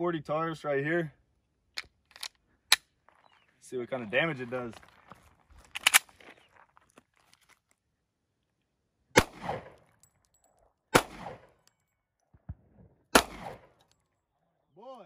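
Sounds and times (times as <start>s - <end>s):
pistol shots: 9.1s - 9.8s, 10.9s - 11.6s, 12.5s - 13.8s.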